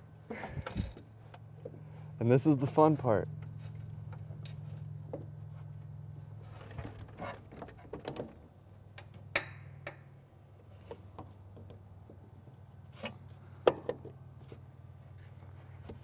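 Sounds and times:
steady low hum: 0.0s - 7.6s.

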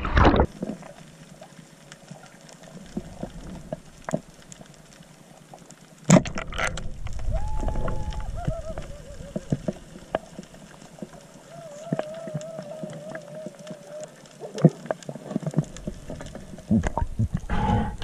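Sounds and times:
scattered clicks and crackles: 0.0s - 18.0s
muffled underwater noise: 6.4s - 18.0s.

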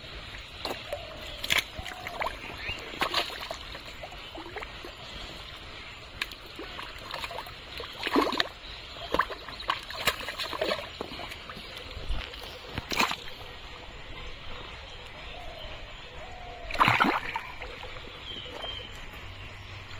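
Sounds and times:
mud squelching and sloshing: 0.2s - 13.9s, 16.6s - 19.6s
splashes and slaps in mud: 0.6s - 4.7s, 6.1s - 13.4s, 16.7s - 17.8s.

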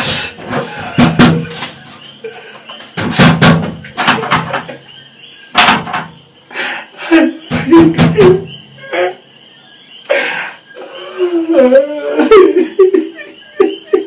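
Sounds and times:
man sobbing loudly: 0.5s - 1.6s, 10.1s - 14.0s.

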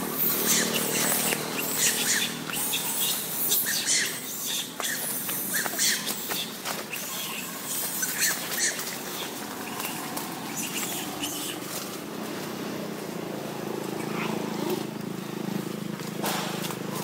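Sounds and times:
monkeys scuffling in dry leaves: 0.0s - 17.0s
motorbike engine running: 0.0s - 17.0s
faint monkey calls: 0.1s - 11.8s.

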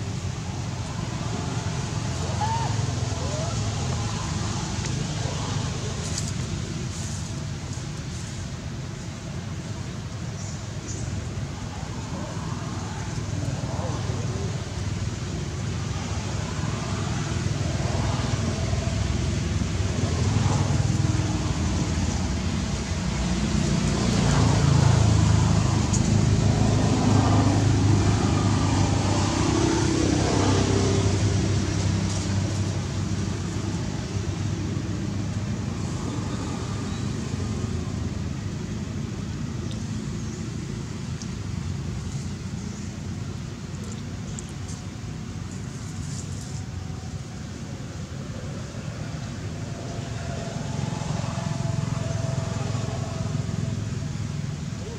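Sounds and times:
vehicle passing: 11.8s - 42.6s, 47.7s - 54.9s.

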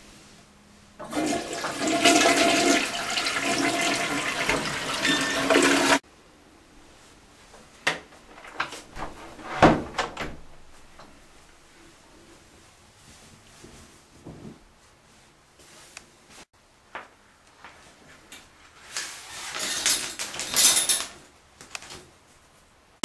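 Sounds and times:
toilet flushing: 1.0s - 6.0s.

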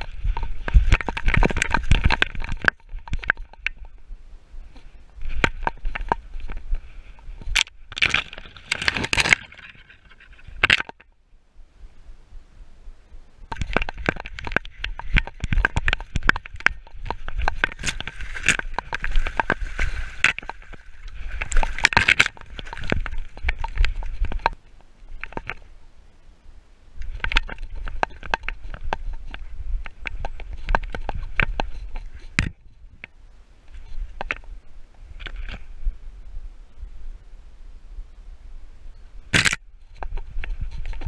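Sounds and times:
twigs rubbing against camera: 0.0s - 4.0s, 4.7s - 11.0s, 13.5s - 25.7s, 39.3s - 41.0s
crackling of dry leaves and twigs: 0.0s - 11.2s, 13.4s - 26.2s, 26.9s - 36.0s.

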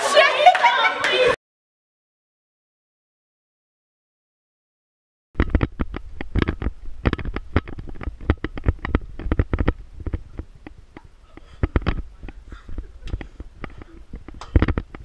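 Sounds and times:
camera handling knocks and thumps: 13.0s - 15.0s.

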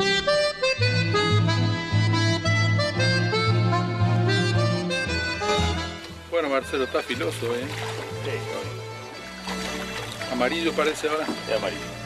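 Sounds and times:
bass notes: 0.0s - 12.0s
reedy melody: 0.0s - 12.0s.

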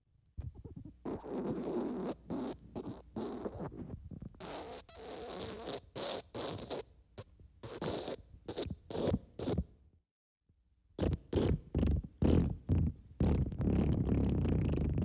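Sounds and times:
wet fart sound effect: 11.0s - 15.0s.

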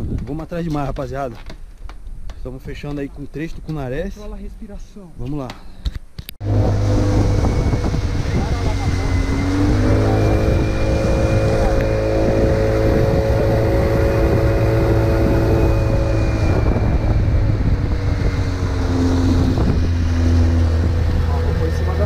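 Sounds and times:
wind rumbling on microphone: 0.0s - 22.0s
outboard motor running: 6.4s - 22.0s.

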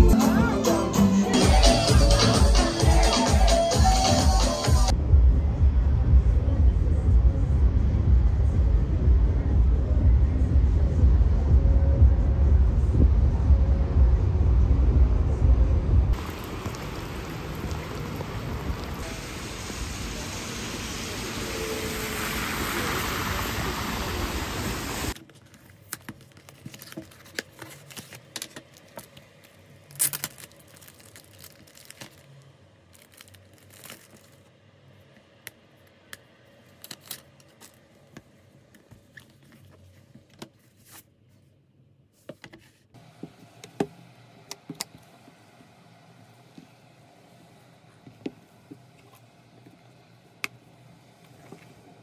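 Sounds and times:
heavy rain on street: 16.2s - 25.2s
plastic bag crinkling: 25.2s - 34.5s.

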